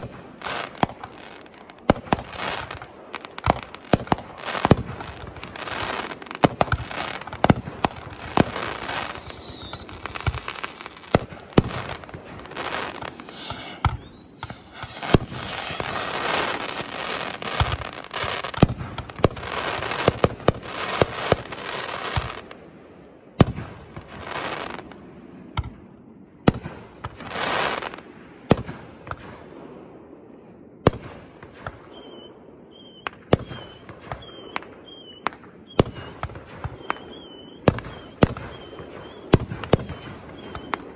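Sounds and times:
firework crackling: 0:00.0 - 0:22.6, 0:31.7 - 0:40.9
firework bangs: 0:00.0 - 0:22.7, 0:30.8 - 0:40.9.

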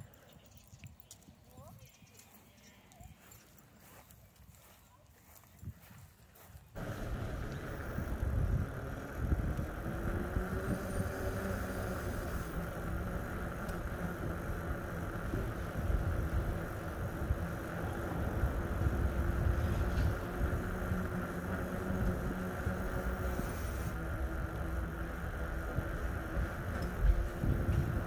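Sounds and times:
vehicle rumbling slowly: 0:03.2 - 0:28.0
faint motor hum: 0:06.8 - 0:28.0.

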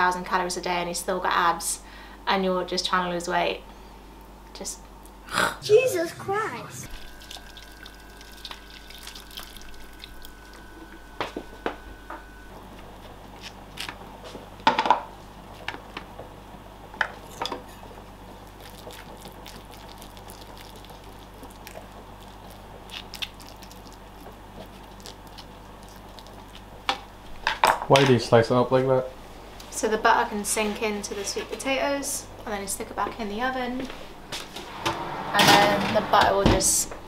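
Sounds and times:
low steady hum: 0:00.0 - 0:14.7, 0:28.5 - 0:37.0
water poured from a kettle: 0:06.9 - 0:10.4.

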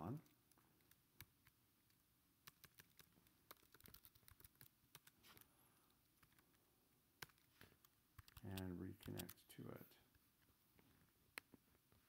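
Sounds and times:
computer keyboard keystrokes: 0:00.2 - 0:05.2, 0:07.2 - 0:09.4.

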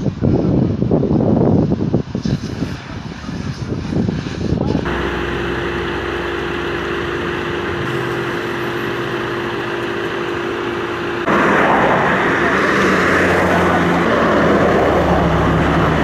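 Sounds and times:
engine idling: 0:04.8 - 0:16.0.

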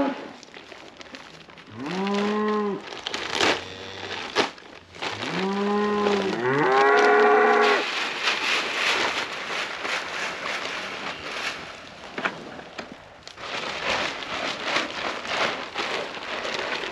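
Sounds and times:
cows mooing: 0:05.2 - 0:07.8.

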